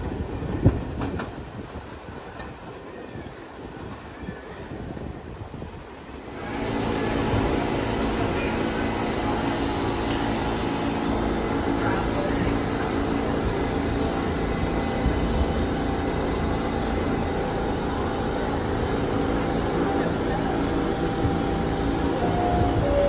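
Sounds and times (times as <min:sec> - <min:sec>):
passenger chatter: 0:00.0 - 0:23.0
subway cars humming: 0:00.0 - 0:23.0.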